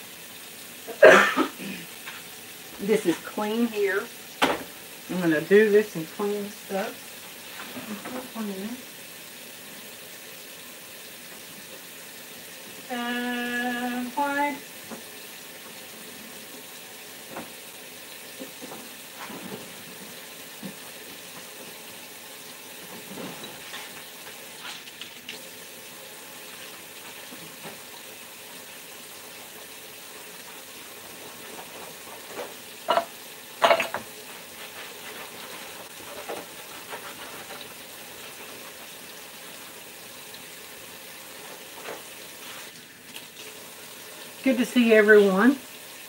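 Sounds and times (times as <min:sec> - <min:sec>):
tap running into sink: 0:04.4 - 0:04.9, 0:14.8 - 0:15.8, 0:17.2 - 0:17.7, 0:31.6 - 0:34.2
cookware clanking: 0:32.8 - 0:34.1.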